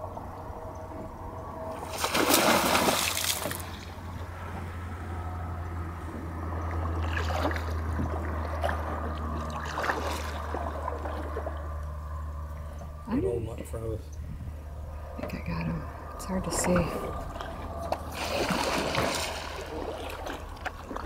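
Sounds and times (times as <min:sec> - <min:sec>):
alligator splashing into water: 0:01.8 - 0:03.9, 0:07.0 - 0:11.6, 0:18.1 - 0:21.0
water lapping and dripping: 0:01.8 - 0:04.3, 0:06.4 - 0:13.0, 0:16.4 - 0:21.0.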